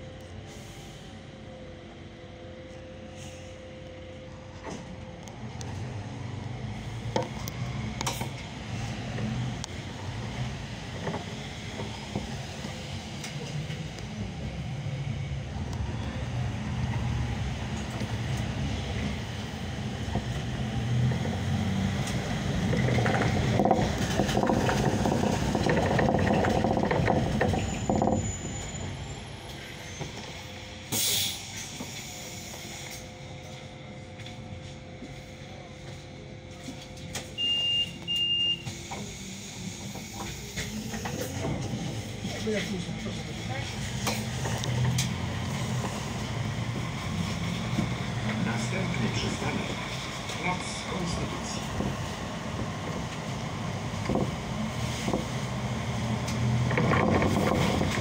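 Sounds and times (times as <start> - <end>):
bus engine and road rumble: 0.0 - 58.0
short high beeps: 37.4 - 38.7.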